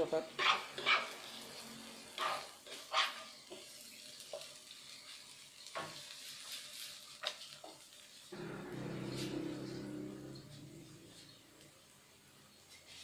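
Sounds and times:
vegetables sizzling in oil: 0.0s - 13.0s
spatula scraping frying pan: 0.3s - 3.8s, 5.8s - 11.5s.

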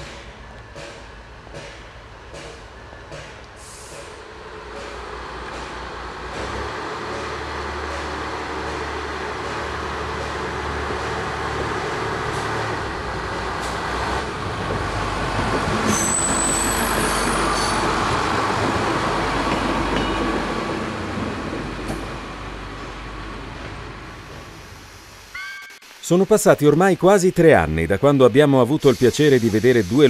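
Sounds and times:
diesel railcar passing: 0.0s - 25.4s
high wheel squeal: 15.8s - 17.9s.

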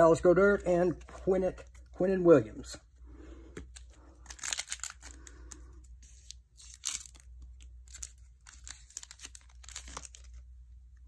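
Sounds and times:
foil wrapper tearing and crinkling: 4.2s - 5.4s, 6.1s - 10.4s.

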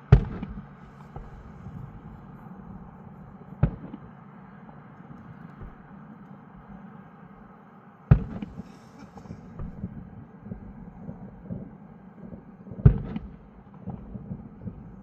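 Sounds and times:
firework bangs: 0.0s - 7.5s, 8.1s - 15.0s
faint thumps: 0.1s - 7.5s.

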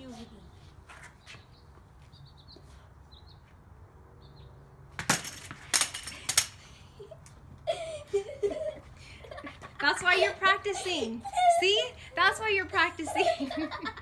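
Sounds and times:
metal tee clattering on concrete: 5.0s - 7.4s.

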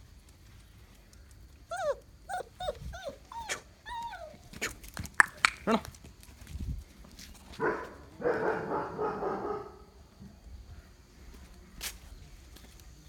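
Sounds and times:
dog whining: 1.7s - 4.7s
dog yelp: 1.7s - 4.7s.

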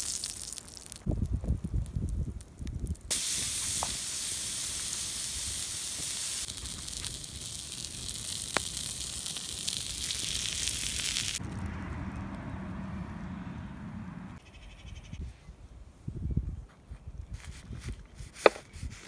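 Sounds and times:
meat patty sizzling on hot rock: 0.0s - 11.5s.

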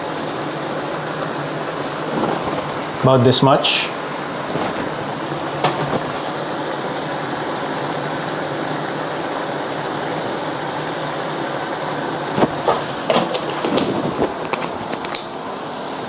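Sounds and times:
sauce simmering in a frying pan: 0.0s - 3.0s, 3.9s - 13.6s.

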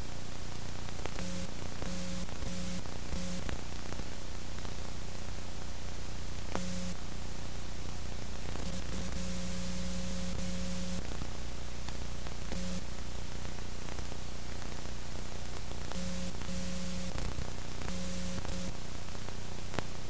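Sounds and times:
low electrical hum: 0.0s - 20.0s
static hiss: 0.0s - 20.0s
electrical buzz: 1.2s - 3.5s, 6.5s - 7.0s, 8.6s - 11.1s, 12.5s - 12.9s, 15.9s - 18.8s.

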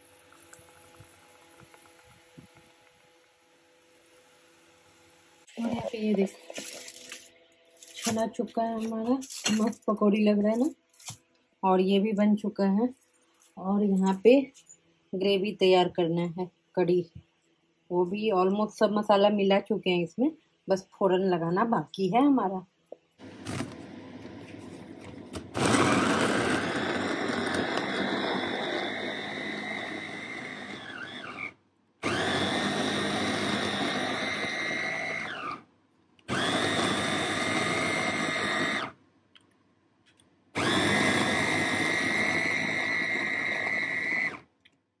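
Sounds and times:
blender motor whining: 23.2s - 35.7s, 36.3s - 39.0s, 40.6s - 44.5s.

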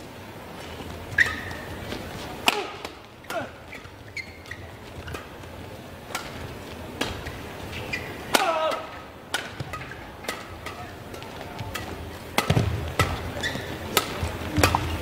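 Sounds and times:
shoe squeaks on court floor: 1.1s - 1.9s, 3.7s - 5.4s, 7.7s - 8.2s, 13.3s - 13.8s
rackets hitting shuttlecock: 2.4s - 5.4s, 6.1s - 15.0s.

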